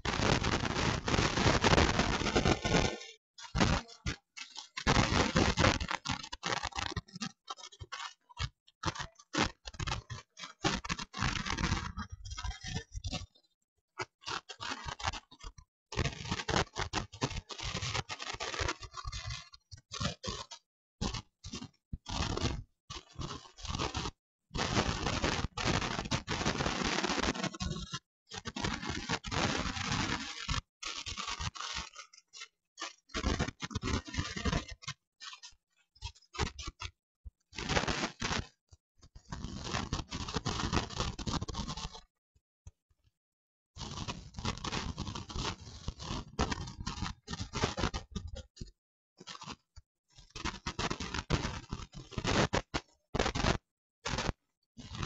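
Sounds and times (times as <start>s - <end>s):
harsh crackling scraping noise: 0.1s - 3.0s.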